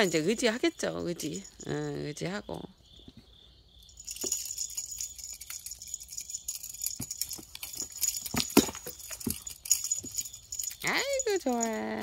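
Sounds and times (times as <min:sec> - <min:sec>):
soft rustling: 0:02.8 - 0:11.8.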